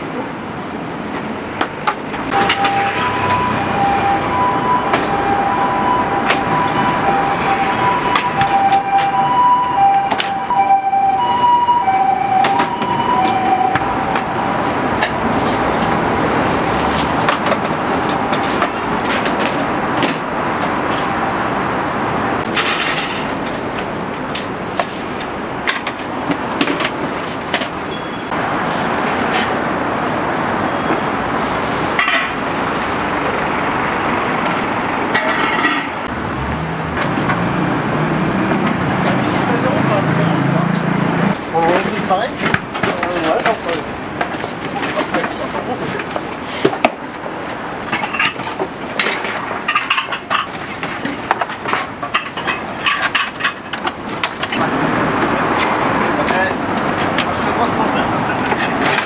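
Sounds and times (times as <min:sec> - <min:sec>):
traffic noise: 0:00.0 - 0:59.0
ambulance siren: 0:02.3 - 0:15.1
metal clinks and knocks: 0:47.9 - 0:50.6, 0:51.2 - 0:54.6.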